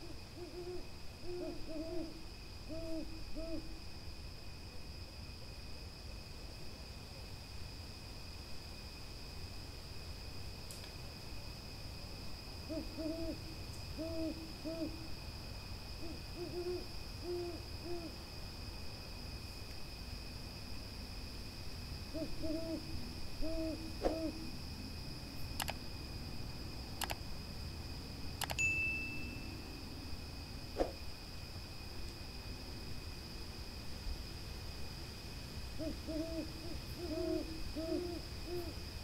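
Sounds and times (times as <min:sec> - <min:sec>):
owl hooting: 0:00.0 - 0:03.8, 0:12.7 - 0:13.4, 0:14.0 - 0:15.0, 0:16.0 - 0:18.1, 0:22.1 - 0:24.5, 0:35.8 - 0:38.7
crickets trilling: 0:00.0 - 0:39.0
sharp clicks: 0:25.6 - 0:25.8, 0:27.0 - 0:27.2, 0:28.4 - 0:28.6.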